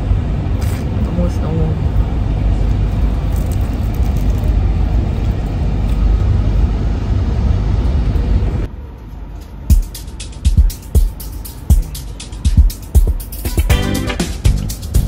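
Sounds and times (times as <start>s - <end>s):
train interior rumble: 0.0s - 13.2s
background music beat: 9.6s - 15.0s.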